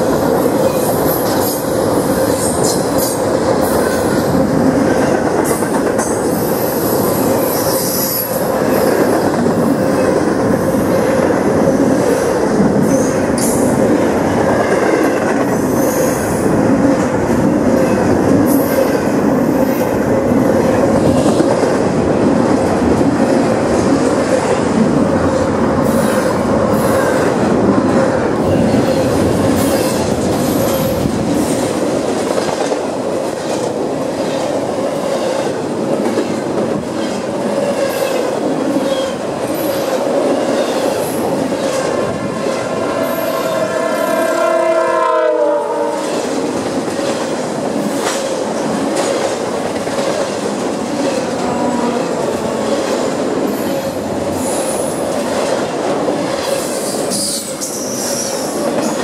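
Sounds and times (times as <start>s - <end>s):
freight train wheels on rails: 0.0s - 59.0s
train horn chord: 42.7s - 46.2s.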